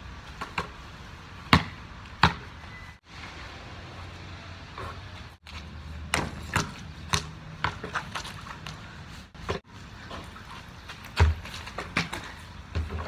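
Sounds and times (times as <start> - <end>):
basketball bouncing on concrete: 1.4 - 2.6, 5.5 - 8.8, 11.1 - 13.0.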